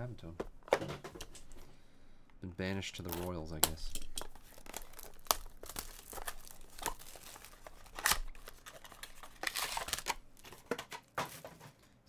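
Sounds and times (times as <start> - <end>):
plastic shrink wrap crinkling: 2.9 - 10.8
foil pack crinkling: 3.0 - 10.8
sharp plastic snap: 3.6 - 3.8.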